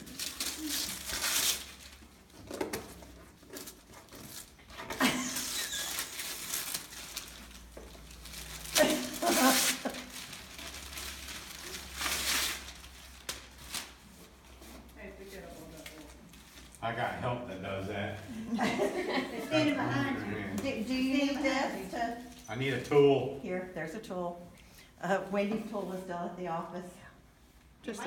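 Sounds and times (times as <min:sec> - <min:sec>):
wrapping paper tearing: 0:00.0 - 0:14.7
paper and plastic crinkling: 0:00.0 - 0:17.1.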